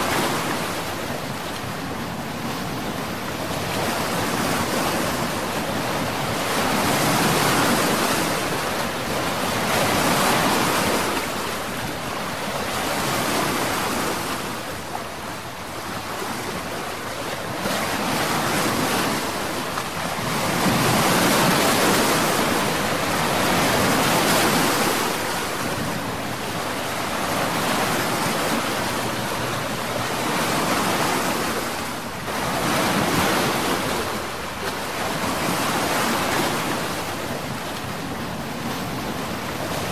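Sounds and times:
water churned by motorboat: 0.0 - 39.9.

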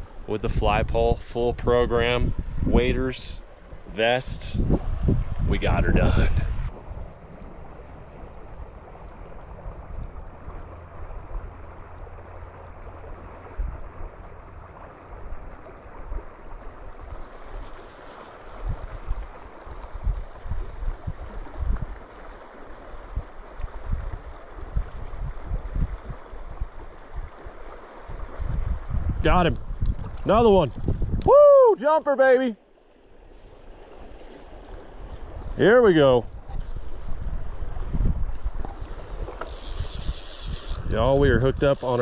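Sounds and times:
wind buffeting microphone: 0.0 - 11.8, 18.5 - 22.0, 22.8 - 31.6, 33.4 - 42.0.

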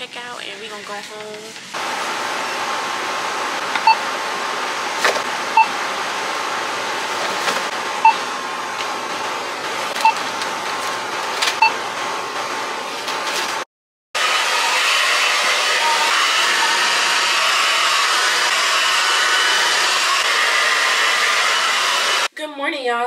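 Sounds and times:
barcode scanner beeping: 10.0 - 10.2, 11.6 - 11.8.

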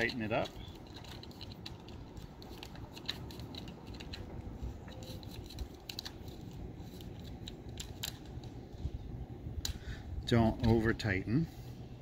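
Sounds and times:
plastic screw clicking and rattling: 0.0 - 4.3
low background noise: 0.0 - 12.0.

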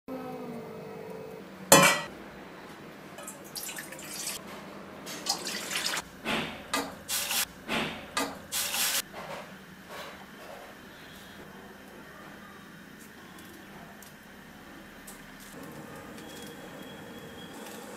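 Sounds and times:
water splashing into a pan: 3.2 - 4.4, 5.1 - 6.0.

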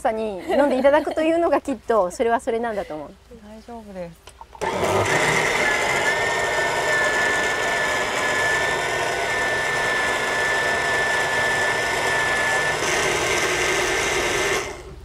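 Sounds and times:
blender crushing fruit: 4.6 - 14.9
high motor whine: 4.6 - 15.0.

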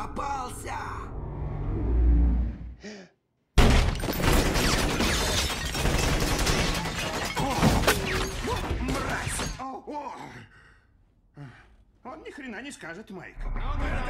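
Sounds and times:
glass bottles shattering: 3.6 - 9.6
rapid pistol shots: 3.9 - 7.3.

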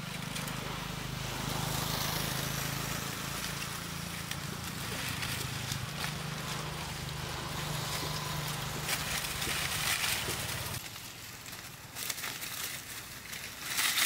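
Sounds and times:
motor humming: 0.0 - 10.8.

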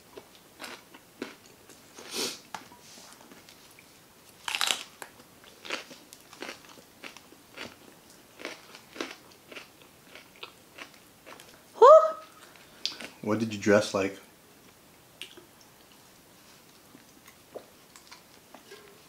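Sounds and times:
crunchy chewing: 0.2 - 2.4, 3.3 - 11.6, 12.3 - 13.2
crunchy bite into pepper: 4.4 - 5.1.

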